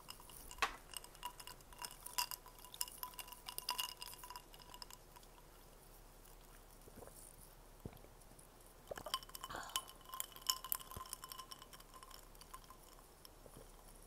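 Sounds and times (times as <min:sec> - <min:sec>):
clinks and taps on glass: 0:00.0 - 0:05.0, 0:08.9 - 0:13.0.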